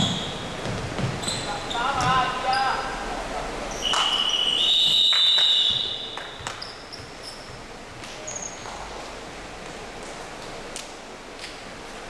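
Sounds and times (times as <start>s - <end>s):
shoe squeaks on court: 1.0s - 2.9s, 3.7s - 7.6s, 8.2s - 8.8s
shrill signal tone: 3.8s - 6.2s.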